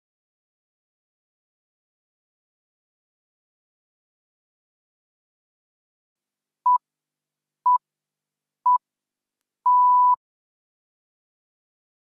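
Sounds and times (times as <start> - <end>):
longer electronic beep: 9.7 - 10.2
short electronic beeps: 9.7 - 10.2.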